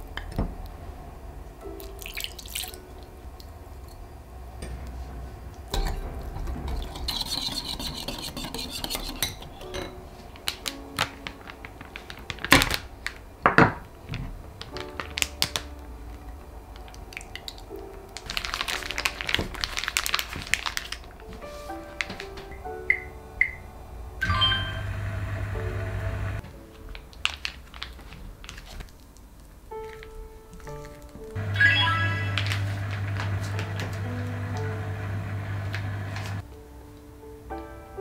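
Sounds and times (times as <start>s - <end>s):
plastic bag crinkling: 10.4s - 13.3s, 14.6s - 15.7s, 16.8s - 22.8s, 26.5s - 33.9s.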